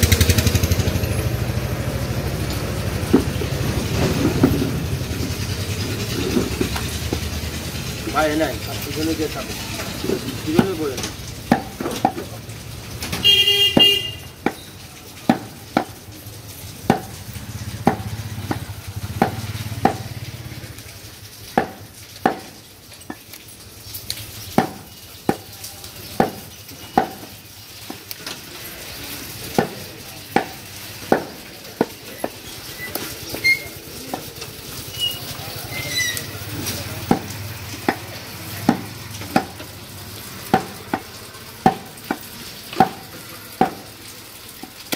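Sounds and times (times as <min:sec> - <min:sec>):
knife chopping meat on wooden block: 0:11.4 - 0:12.3, 0:15.3 - 0:16.0, 0:16.9 - 0:17.2, 0:17.8 - 0:20.1, 0:21.5 - 0:23.3, 0:24.5 - 0:25.5, 0:26.2 - 0:28.0, 0:29.5 - 0:32.4, 0:37.1 - 0:39.7, 0:40.4 - 0:43.9
vehicle horn: 0:13.2 - 0:14.4.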